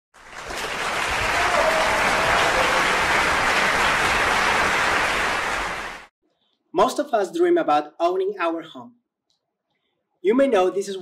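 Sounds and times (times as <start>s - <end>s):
audience applauding: 0.1s - 6.1s.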